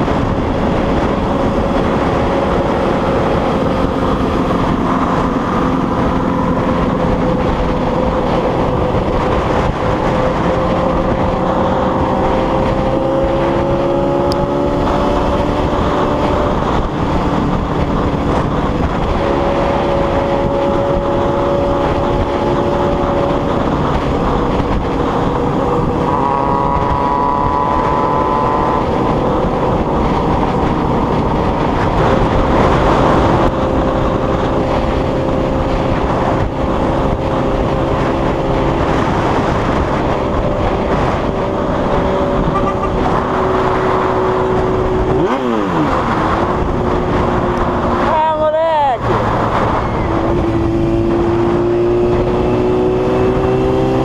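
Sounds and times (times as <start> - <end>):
motorcycle engine running: 0.0 - 54.0
road noise: 0.0 - 54.0
rushing wind: 0.0 - 54.0.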